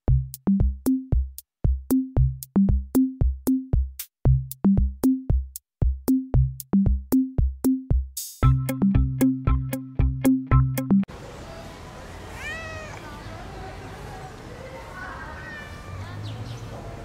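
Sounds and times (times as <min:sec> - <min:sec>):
electronic music with drum machine beat: 0:00.1 - 0:11.1.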